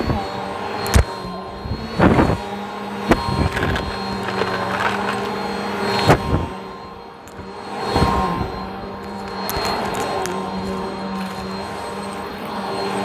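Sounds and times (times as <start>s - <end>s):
vacuum cleaner motor humming: 0.0s - 13.0s
debris clicking through vacuum nozzle: 3.4s - 5.5s.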